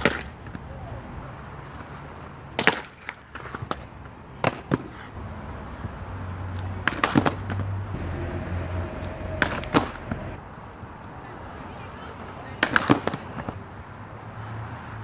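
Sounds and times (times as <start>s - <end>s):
skate wheels rolling rumble: 0.0s - 15.0s
skate wheels clacking on concrete: 1.6s - 5.2s, 6.4s - 7.7s, 12.2s - 13.6s.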